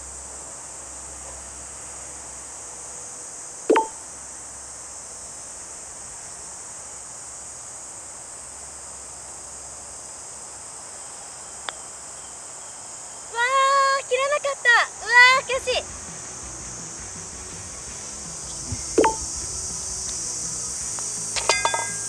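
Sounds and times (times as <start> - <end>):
high-pitched insect chorus: 0.0 - 22.0
putter striking golf ball: 3.7 - 4.0, 18.5 - 20.3.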